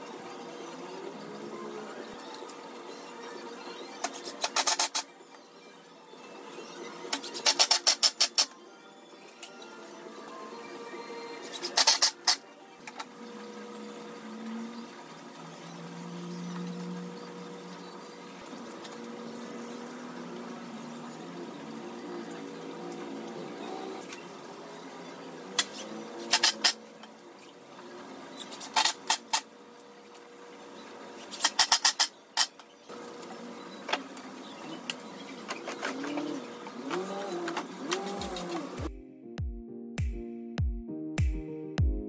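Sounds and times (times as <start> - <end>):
steady background hum: 0.0 - 42.0.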